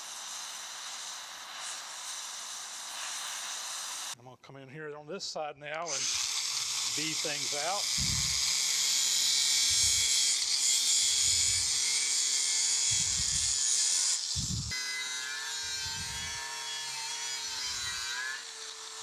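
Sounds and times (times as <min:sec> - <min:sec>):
angle grinder grinding metal: 0:00.0 - 0:04.2, 0:05.8 - 0:19.0
grinder motor whine: 0:05.9 - 0:19.0.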